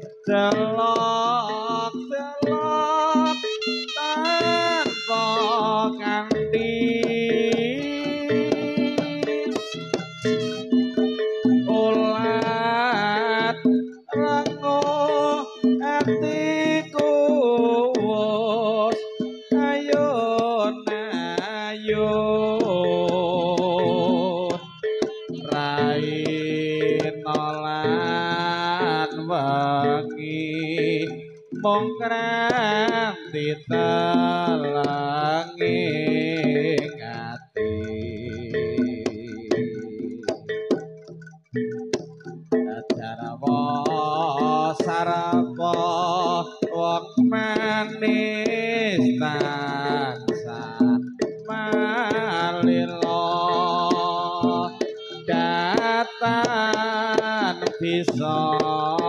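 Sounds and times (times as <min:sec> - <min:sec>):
steady held tone: 0:00.0 - 0:20.4
wavering melody line: 0:00.0 - 0:59.0.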